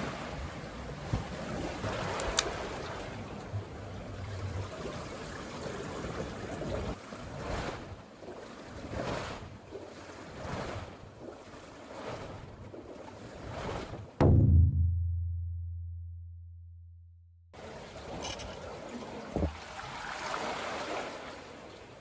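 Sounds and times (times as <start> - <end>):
seawater sloshing between blocks: 0.0 - 14.2, 17.6 - 22.0.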